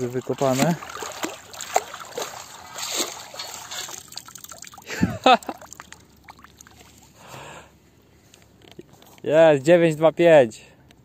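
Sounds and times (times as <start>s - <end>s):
water draining and dripping: 0.0s - 7.1s.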